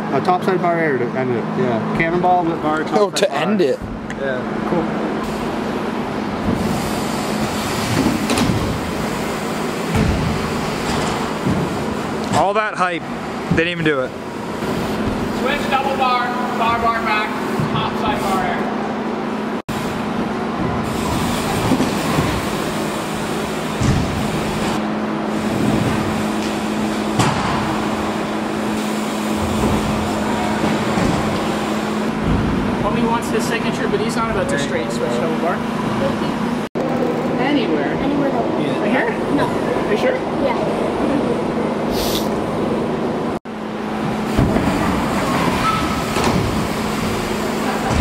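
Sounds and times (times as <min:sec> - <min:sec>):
steady low hum: 0:00.0 - 0:48.0
bike tyres rolling on wooden ramp: 0:20.6 - 0:24.8
bike landing knocks: 0:23.7 - 0:24.4.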